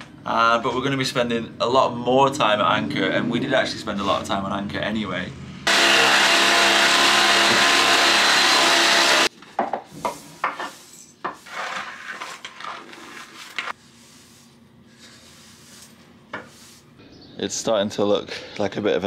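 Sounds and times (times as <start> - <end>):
electric motor running: 5.7 - 9.3
hand brush sweeping into dustpan: 9.9 - 16.9.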